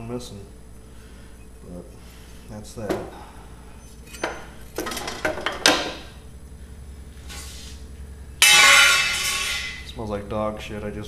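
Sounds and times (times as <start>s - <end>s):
metal tools knocking and clinking: 4.1s - 6.0s.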